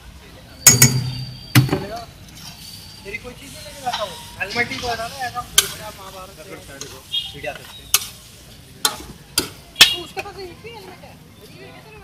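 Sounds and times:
metal spatula scraping griddle: 2.3s - 9.1s
frying sizzle: 3.4s - 10.0s
spatula clacking on griddle: 5.5s - 5.9s, 7.9s - 10.0s.

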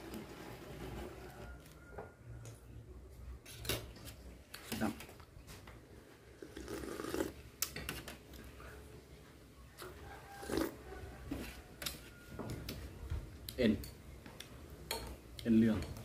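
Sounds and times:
mouth sounds of eating: 6.3s - 7.4s, 9.8s - 11.1s.

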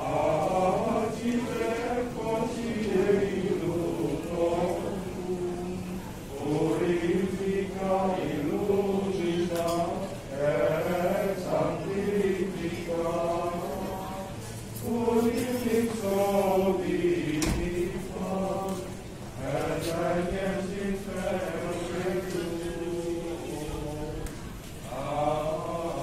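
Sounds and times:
group chanting prayer in unison: 0.0s - 26.0s.

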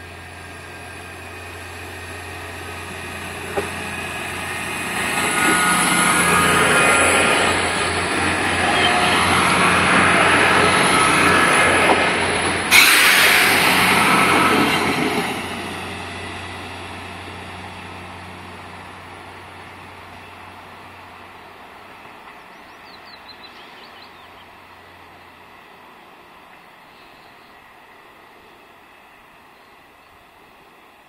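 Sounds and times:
diesel engine hum: 0.0s - 21.8s
train wheel and rail noise: 0.0s - 31.0s.

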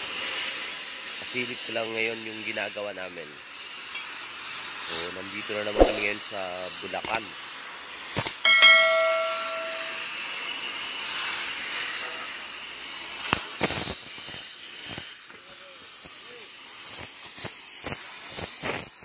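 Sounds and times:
cutting torch hissing: 0.0s - 8.4s, 10.2s - 19.0s
metallic knocks: 8.5s - 10.0s.

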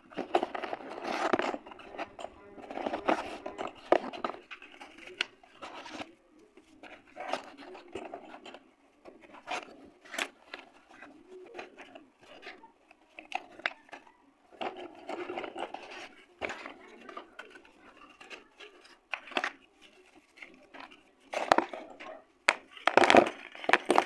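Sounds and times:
cardboard scraping and rustling: 0.0s - 12.6s.

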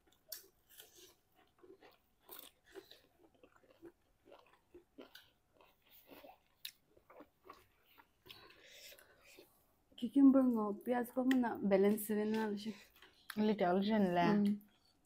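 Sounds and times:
chewing and biting food: 0.0s - 9.6s.

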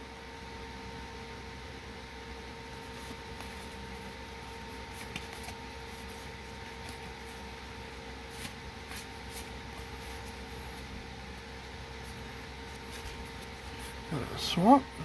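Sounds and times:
steady hum: 0.0s - 15.0s
cards swishing against cards: 2.7s - 14.1s.

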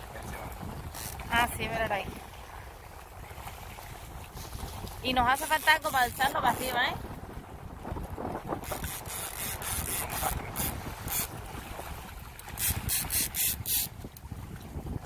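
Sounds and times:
wind rumble on microphone: 0.0s - 15.0s
rasping rubs: 8.6s - 11.3s, 12.6s - 13.9s.

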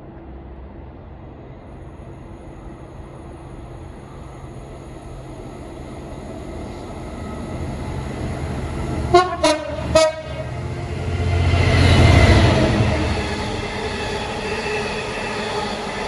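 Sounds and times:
two-tone train horn toots: 9.1s - 10.6s.

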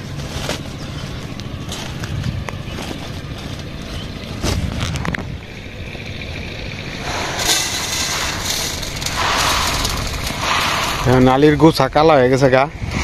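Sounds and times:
wind buffeting microphone: 1.0s - 13.0s
rustling hiss: 2.8s - 12.0s.

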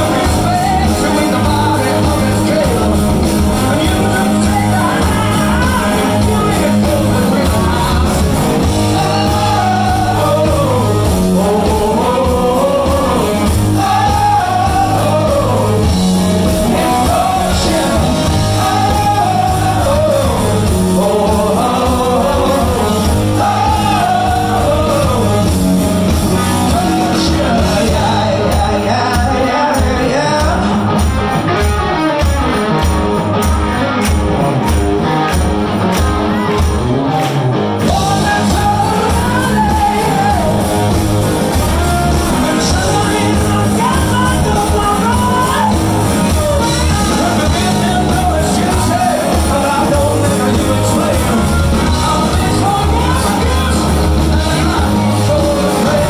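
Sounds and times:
man singing: 0.0s - 31.0s, 37.8s - 56.0s
live rock band playing: 0.0s - 56.0s.

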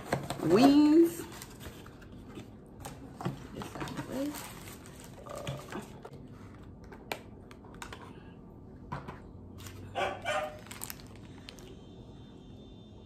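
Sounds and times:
dog barking: 9.9s - 10.6s.

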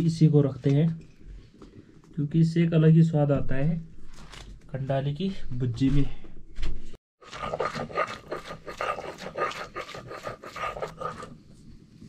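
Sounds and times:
greens rubbed by hand on board: 7.3s - 11.4s.

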